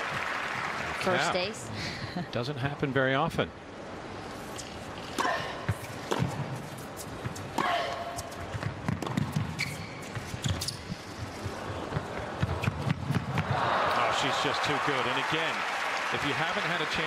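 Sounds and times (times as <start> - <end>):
tennis ball hits and bounces: 5.1 - 10.8.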